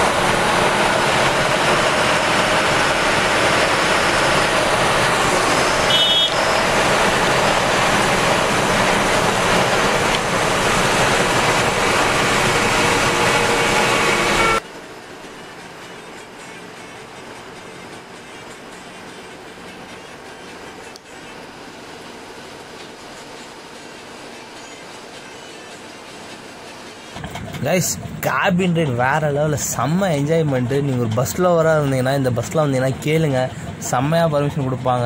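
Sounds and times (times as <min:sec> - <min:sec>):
bus engine and road noise: 0:00.0 - 0:35.0
brief high tone: 0:05.7 - 0:06.7.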